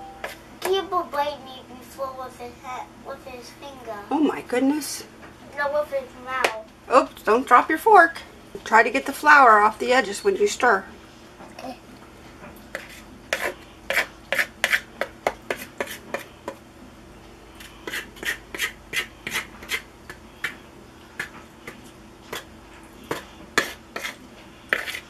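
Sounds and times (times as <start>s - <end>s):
fork scraping mixing bowl: 12.7s - 16.6s, 17.5s - 25.0s.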